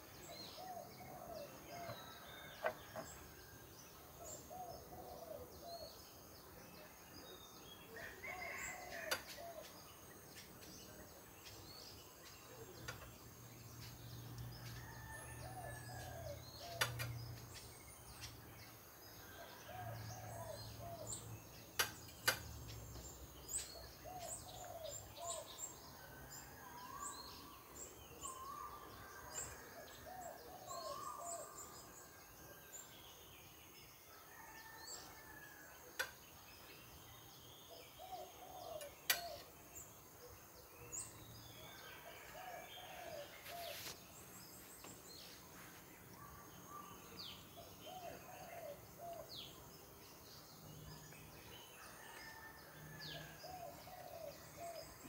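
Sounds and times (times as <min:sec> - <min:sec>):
sharp clicks: 0:21.8 - 0:22.5.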